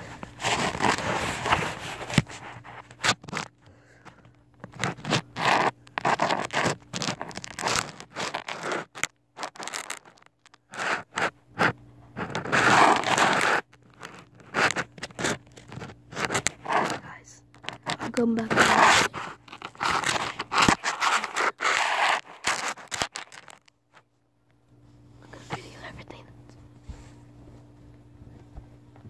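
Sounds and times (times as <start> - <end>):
microphone brushing fabric: 0.0 - 3.4, 10.7 - 17.1, 17.7 - 23.4
phone scraping on floor: 0.0 - 3.5, 4.6 - 17.0, 17.6 - 23.6.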